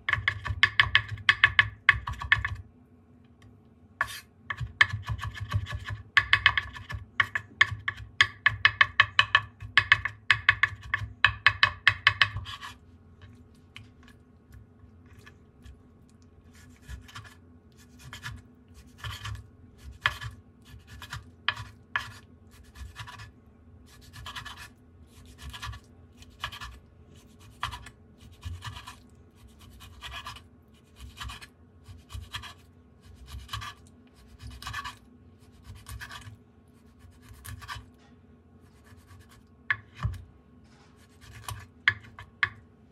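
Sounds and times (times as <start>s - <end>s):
knife chopping on cutting board: 0.0s - 2.6s, 4.0s - 12.7s, 18.0s - 23.3s.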